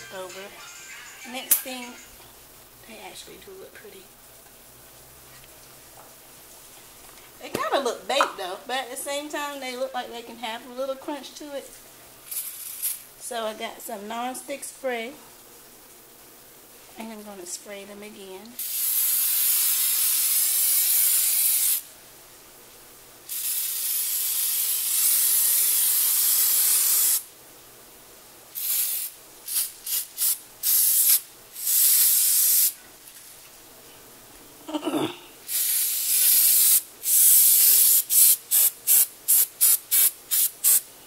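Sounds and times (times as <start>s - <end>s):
aerosol spray hissing: 18.6s - 21.8s, 23.3s - 27.2s, 28.6s - 32.8s, 35.5s - 40.9s.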